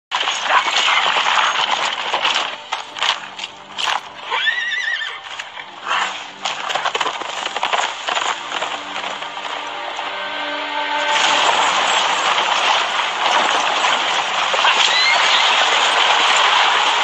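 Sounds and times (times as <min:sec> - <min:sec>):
horses galloping: 0:00.1 - 0:10.4, 0:11.0 - 0:17.0
horse neighing: 0:04.2 - 0:05.3.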